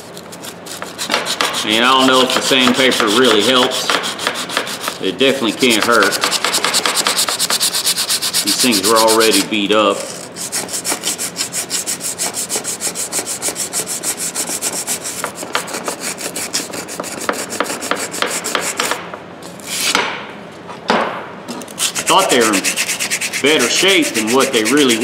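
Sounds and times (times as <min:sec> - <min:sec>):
sandpaper rubbing on steel: 0:00.0 - 0:18.9, 0:21.8 - 0:25.0.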